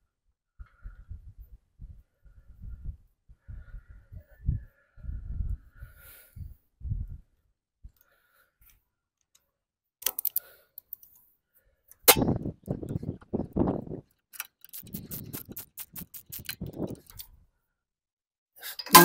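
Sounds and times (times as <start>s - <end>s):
ratchet wrench clicking: 10.0s - 11.0s, 14.4s - 17.2s.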